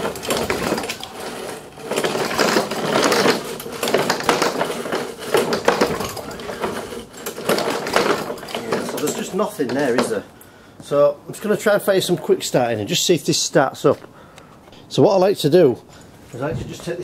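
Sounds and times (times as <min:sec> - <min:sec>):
mower engine cranking without firing: 0:00.0 - 0:10.2.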